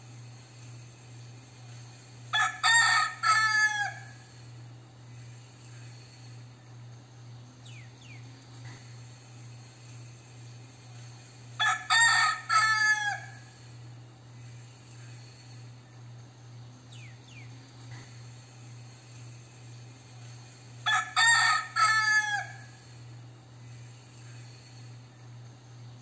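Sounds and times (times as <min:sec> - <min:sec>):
rooster crowing: 0:02.3 - 0:04.4, 0:11.6 - 0:13.7, 0:20.8 - 0:23.0.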